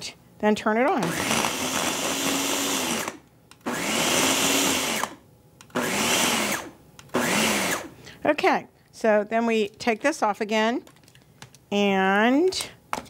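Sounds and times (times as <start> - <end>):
blender motor whining: 1.0 - 7.9.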